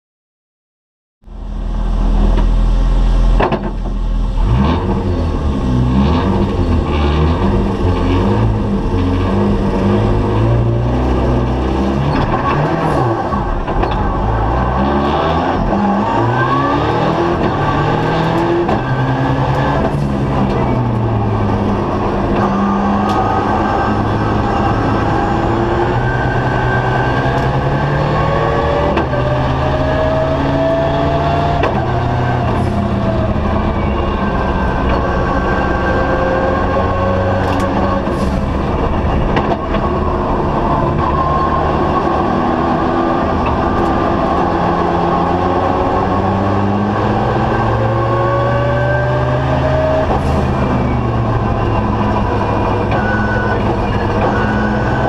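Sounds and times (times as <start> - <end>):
car engine accelerating hard: 1.3 - 55.0.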